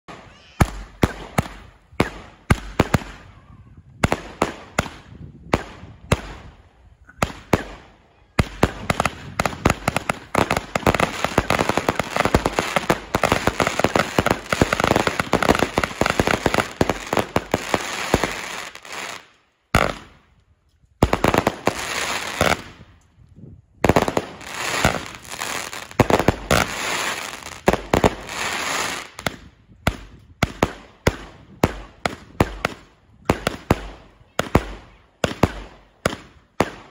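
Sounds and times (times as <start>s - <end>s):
firework battery firing: 0.1s - 3.2s, 7.2s - 20.2s, 23.8s - 36.9s.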